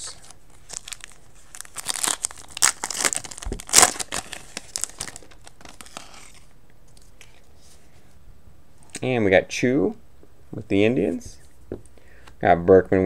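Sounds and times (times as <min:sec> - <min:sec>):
plastic wrapper crinkling and tearing: 0:00.1 - 0:07.5.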